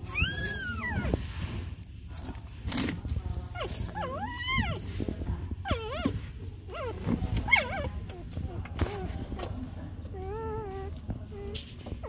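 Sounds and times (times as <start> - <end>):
puppies whimpering: 0.0 - 1.2, 3.5 - 4.9, 5.6 - 9.4, 10.0 - 12.0.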